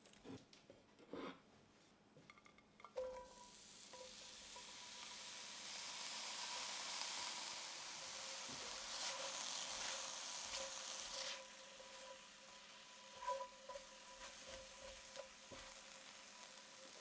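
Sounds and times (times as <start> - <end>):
vegetables sizzling in a skillet: 2.9 - 17.0
spatula scraping a pan: 8.0 - 17.0.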